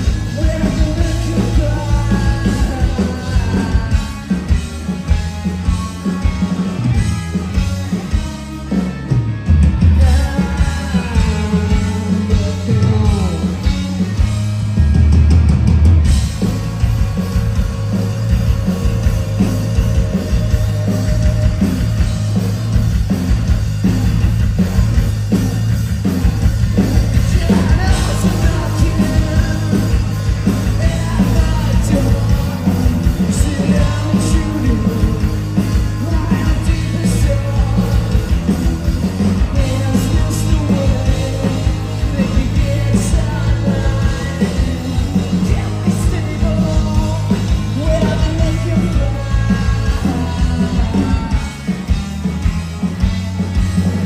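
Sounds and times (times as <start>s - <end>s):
person singing: 0.0s - 4.5s, 9.8s - 13.8s, 17.9s - 22.1s, 27.1s - 51.8s
rock band playing live: 0.0s - 54.0s.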